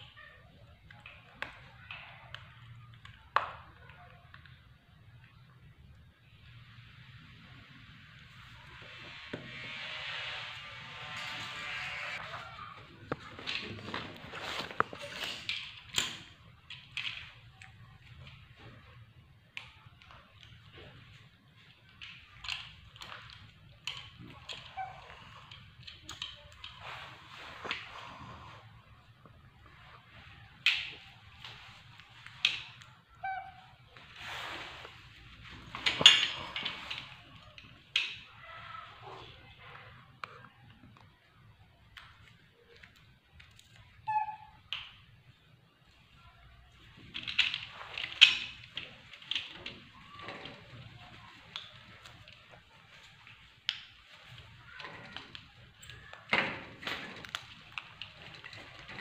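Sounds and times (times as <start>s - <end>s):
rustling: 6.8s - 19.0s, 21.0s - 39.5s
curtain rustling: 7.6s - 15.5s, 34.0s - 37.2s
monkey squeaky call: 44.1s - 44.5s.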